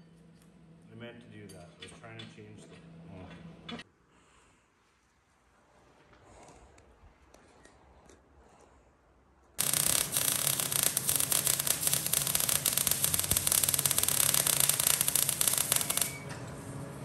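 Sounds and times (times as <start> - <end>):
welder arc crackling: 9.6 - 16.3.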